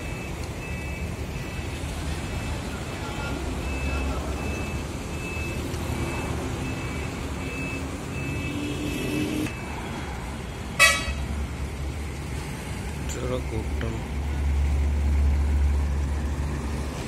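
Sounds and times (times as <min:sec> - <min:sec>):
truck reversing alarm beeping: 0:00.0 - 0:11.0
heavy vehicle engines rumbling: 0:00.0 - 0:17.0.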